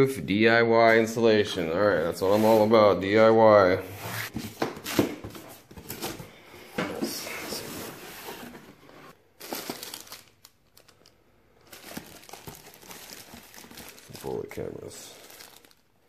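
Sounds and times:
plastic bags crinkling: 9.3s - 16.0s.

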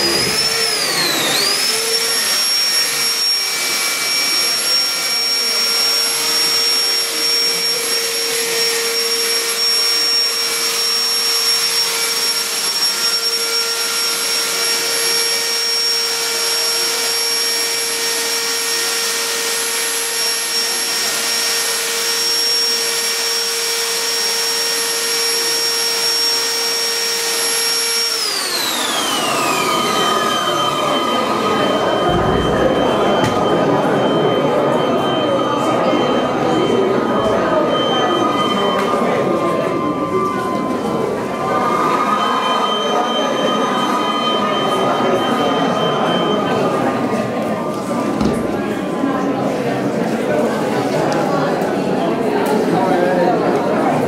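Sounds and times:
electric motor whining: 0.0s - 36.3s.

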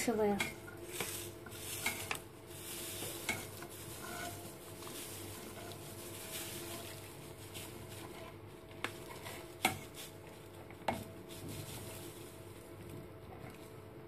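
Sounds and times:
ladle stirring broth: 0.4s - 11.0s.

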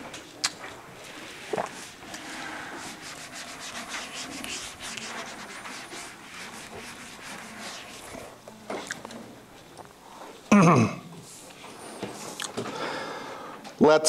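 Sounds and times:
eraser rubbing on whiteboard: 1.1s - 8.4s.

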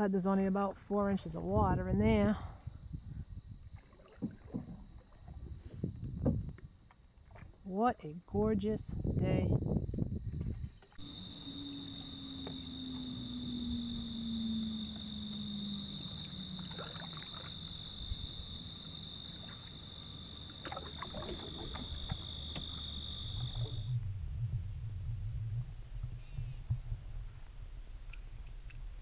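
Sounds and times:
high-pitched insect chorus: 2.2s - 23.9s
paddle splashes and drips: 3.7s - 7.6s, 10.8s - 24.1s
faint low hum: 7.7s - 29.0s.

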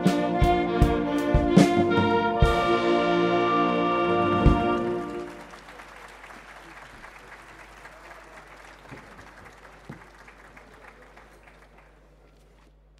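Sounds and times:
audience applauding: 4.2s - 12.7s.

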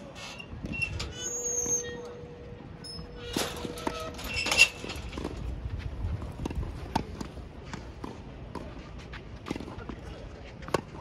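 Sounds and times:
tennis ball bouncing: 6.2s - 10.0s, 10.6s - 11.0s.

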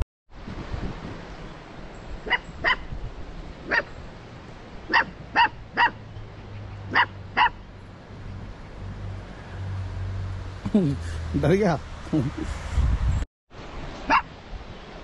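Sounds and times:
puppy barking in high yips: 2.2s - 2.9s, 3.7s - 4.0s, 4.9s - 6.0s, 6.9s - 7.6s, 14.1s - 14.3s.

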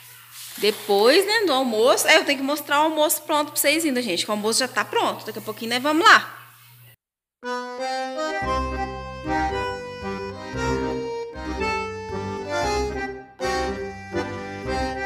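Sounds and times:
instrumental background music: 7.4s - 15.0s.

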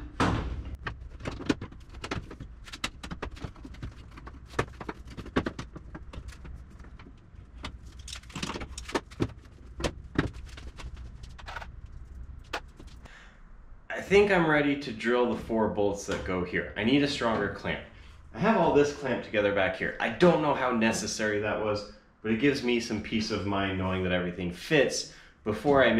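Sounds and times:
low hum: 5.7s - 20.2s.

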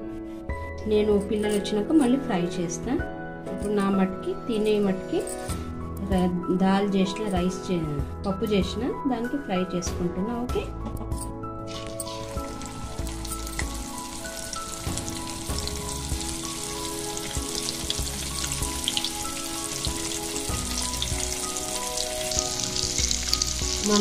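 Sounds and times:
background music: 0.0s - 24.0s
fish sizzling in hot oil: 11.7s - 24.0s.

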